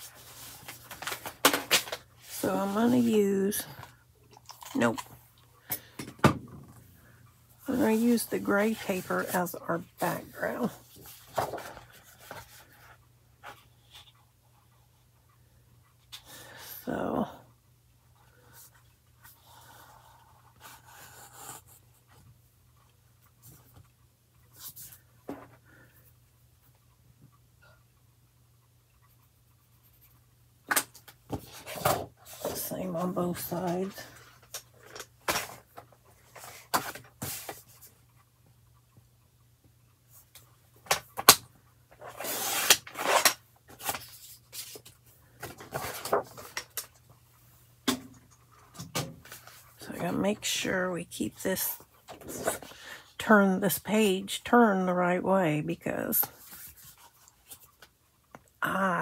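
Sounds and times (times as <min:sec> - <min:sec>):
paper shuffling and rustling: 0:00.0 - 0:03.9, 0:07.7 - 0:14.2, 0:42.0 - 0:47.0.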